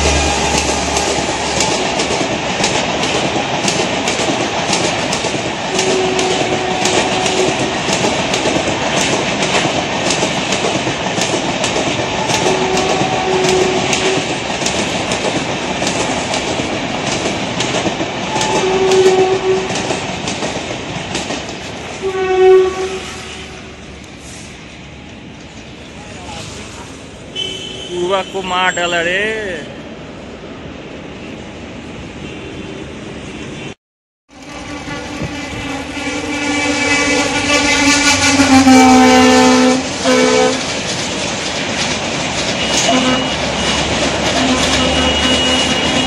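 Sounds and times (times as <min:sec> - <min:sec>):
train horn blasts: 0:00.0 - 0:01.9, 0:05.7 - 0:07.8, 0:12.2 - 0:14.3, 0:18.3 - 0:19.8, 0:22.0 - 0:23.7, 0:34.3 - 0:40.6, 0:42.6 - 0:46.0
train wheels rushing on rails: 0:00.0 - 0:33.8, 0:34.4 - 0:46.0
wheels clicking over rail joints: 0:00.4 - 0:22.0, 0:39.8 - 0:46.0
wheels clattering over rail joints: 0:39.9 - 0:46.0.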